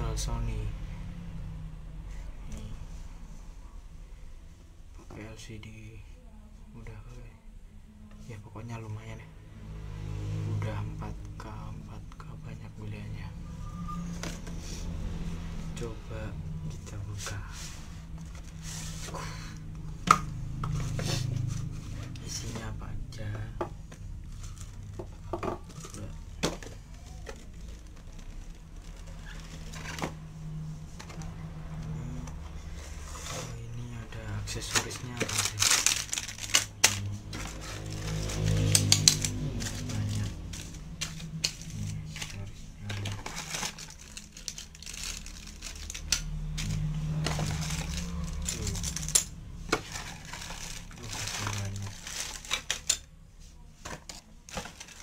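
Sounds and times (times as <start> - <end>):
low steady hum: 0.0 - 55.0
box and plastic case handled: 23.8 - 30.2, 34.4 - 53.0, 53.8 - 55.0
plastic bags crinkling: 25.7 - 30.1, 34.4 - 53.1, 54.0 - 55.0.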